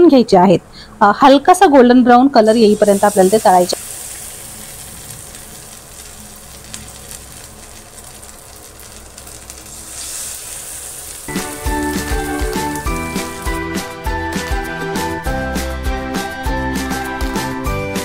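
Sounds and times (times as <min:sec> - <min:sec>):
food deep-frying in hot oil: 0:02.4 - 0:13.6
faint crackles: 0:02.5 - 0:12.8
background music: 0:11.3 - 0:18.0.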